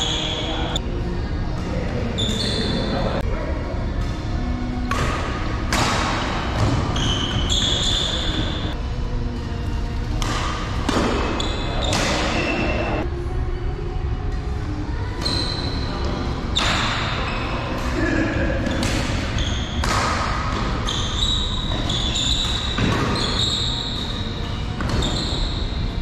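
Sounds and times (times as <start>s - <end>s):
shoes squeaking on court floor: 2.2s - 3.0s, 6.6s - 8.8s, 11.2s - 13.0s, 19.2s - 19.9s, 20.6s - 25.8s
rackets striking shuttlecock: 4.8s - 8.0s, 10.1s - 12.6s, 16.5s - 21.1s.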